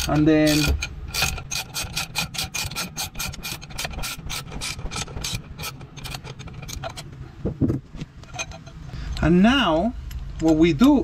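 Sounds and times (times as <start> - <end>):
ratchet wrench clicking: 0.0 - 7.0.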